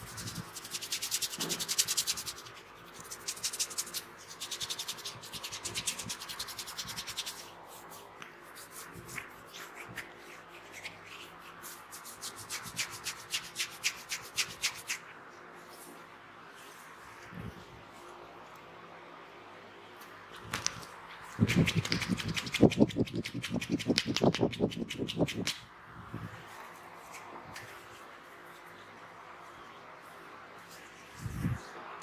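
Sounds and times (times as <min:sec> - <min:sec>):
fingertips rubbing ear and hair: 0:00.0 - 0:15.1, 0:21.4 - 0:25.6.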